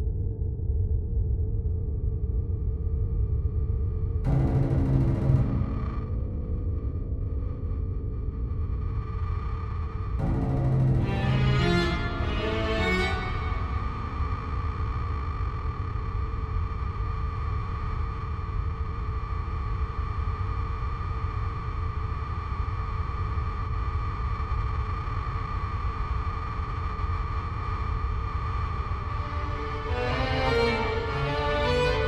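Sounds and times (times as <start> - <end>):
deep rumbling drone: 0.0 - 17.8, 28.6 - 32.0.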